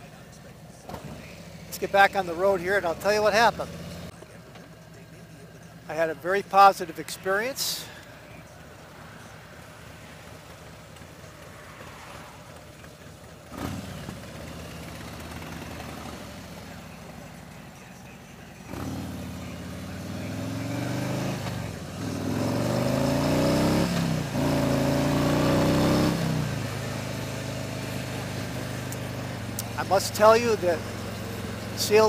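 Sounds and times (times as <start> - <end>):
motorcycle engine running: 0.0 - 7.0, 7.7 - 32.0.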